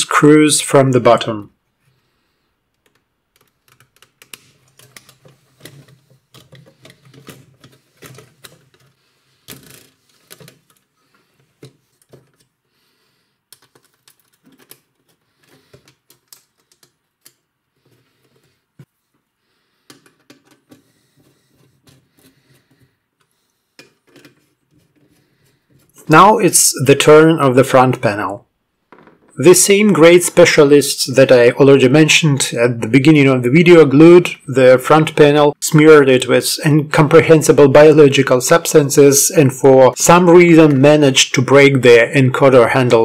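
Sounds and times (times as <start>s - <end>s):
hands handling circuit board: 2.8s - 12.6s, 13.5s - 19.0s.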